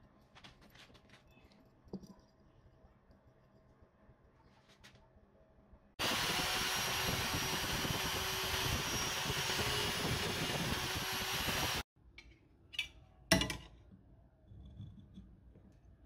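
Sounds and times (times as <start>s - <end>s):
electric drill boring into wood: 6.0s - 11.8s.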